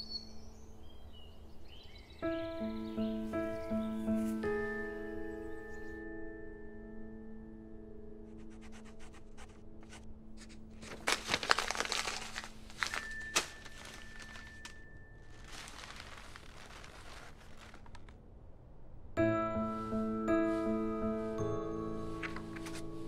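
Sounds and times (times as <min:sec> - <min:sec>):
paper crumpling and tearing: 0:09.8 - 0:18.2
music with mallet bell notes: 0:19.2 - 0:23.0.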